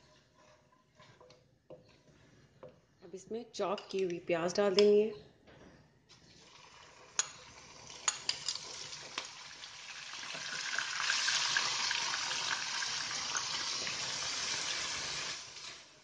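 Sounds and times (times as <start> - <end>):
onion sizzling in hot oil: 6.3 - 16.0.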